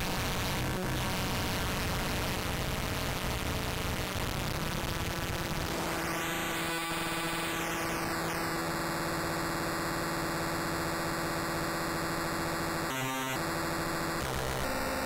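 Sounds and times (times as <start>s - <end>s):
harsh noisy electronic drone: 0.0s - 15.0s.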